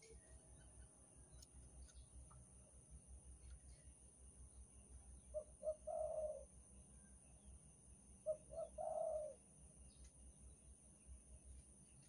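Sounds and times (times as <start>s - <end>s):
dove cooing: 5.3s - 6.5s, 8.2s - 9.5s.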